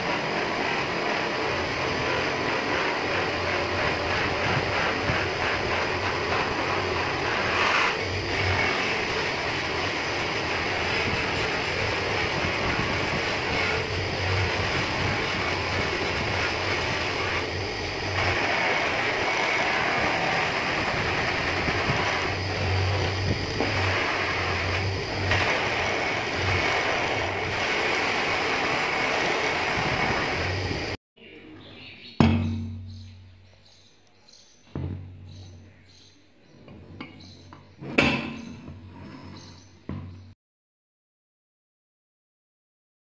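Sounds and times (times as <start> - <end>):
buffing wheel whirring on metal: 0.0 - 31.0
polishing motor hum: 0.0 - 31.0.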